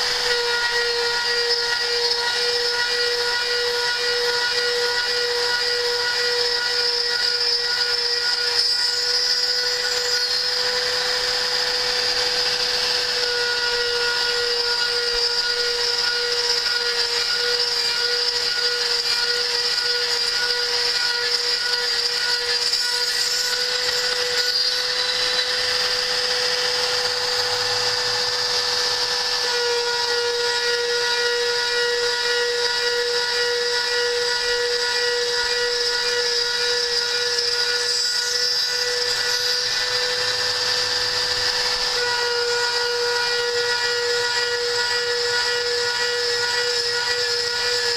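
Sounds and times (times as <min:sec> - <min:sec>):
cnc router milling metal: 0:00.0 - 0:47.9.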